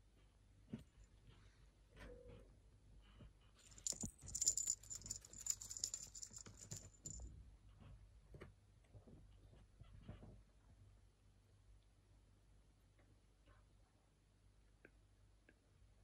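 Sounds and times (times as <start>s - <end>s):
toy bell jingling: 3.6s - 7.3s.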